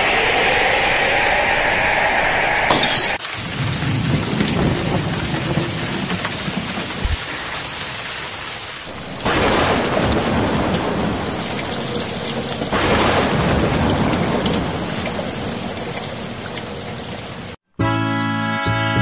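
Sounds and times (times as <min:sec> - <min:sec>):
heavy rain: 0:02.8 - 0:17.6
thunder: 0:03.3 - 0:17.6.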